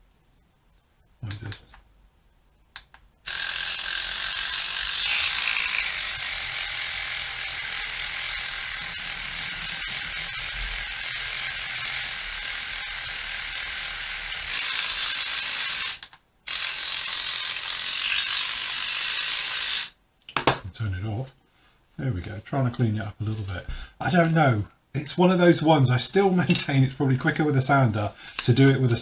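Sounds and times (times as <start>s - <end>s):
sander buzzing: 3.3s - 19.9s.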